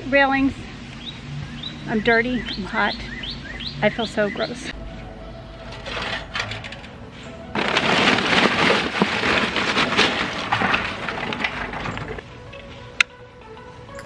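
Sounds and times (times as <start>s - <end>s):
charcoal clattering onto metal grate: 5.6s - 12.2s.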